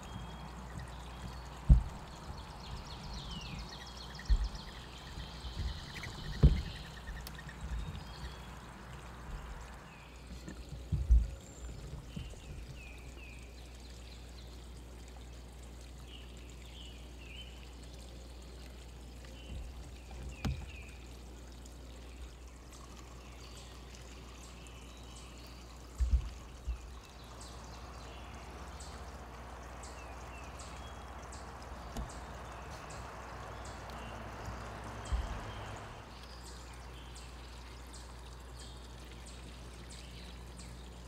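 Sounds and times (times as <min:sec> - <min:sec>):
low thumps: 0:00.7 - 0:07.0, 0:34.9 - 0:35.5.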